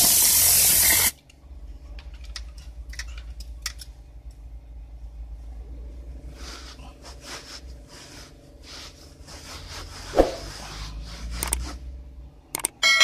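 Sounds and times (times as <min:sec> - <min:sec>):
cloth swishing on fabric: 0:08.8 - 0:11.4
sharp clicks: 0:12.5 - 0:12.8.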